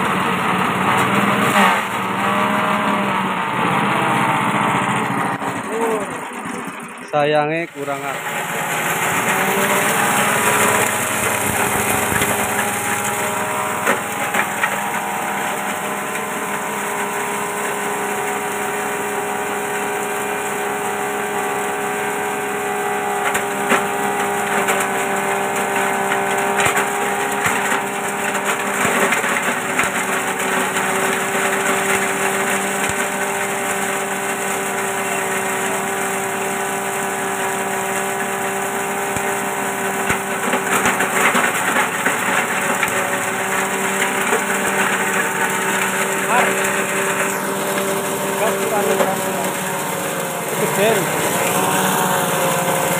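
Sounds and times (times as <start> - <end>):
shredder chopping plant material: 0.0 - 52.9
small petrol engine running: 0.0 - 52.9.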